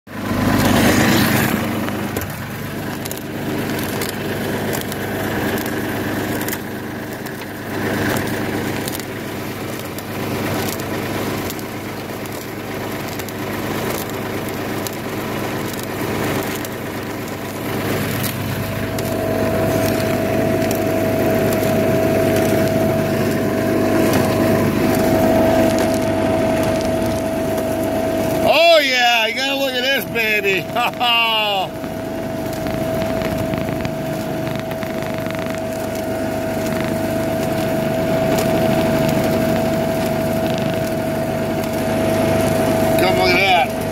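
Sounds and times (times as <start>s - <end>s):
machine crunching and grinding: 0.1s - 43.9s
steady whine: 0.1s - 43.9s.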